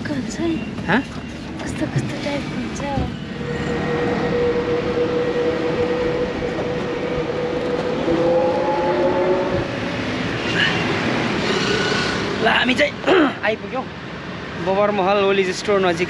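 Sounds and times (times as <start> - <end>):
road and wind noise: 0.0 - 16.0
whining tones: 0.6 - 12.7.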